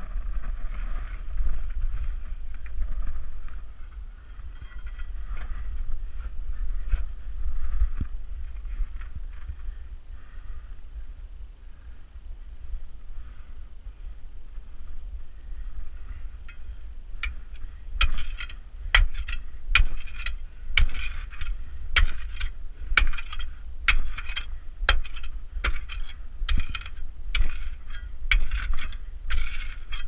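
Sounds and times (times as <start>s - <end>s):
steel rod striking rock: 17.2s - 30.0s.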